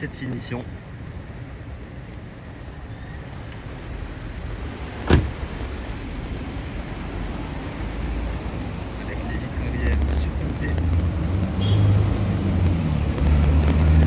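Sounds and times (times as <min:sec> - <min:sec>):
low street traffic rumble: 0:00.0 - 0:14.0
car door shutting: 0:05.0 - 0:05.4.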